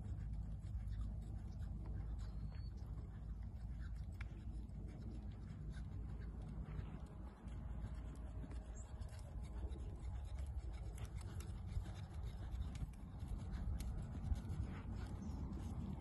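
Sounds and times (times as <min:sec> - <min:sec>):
wind buffeting microphone: 0:04.8 - 0:16.0.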